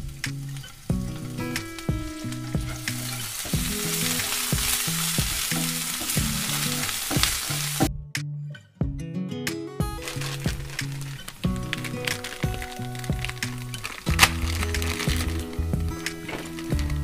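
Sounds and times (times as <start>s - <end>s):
vegetables sizzling in oil: 0.0s - 7.9s, 10.0s - 17.0s
spatula stirring in pan: 0.8s - 7.9s.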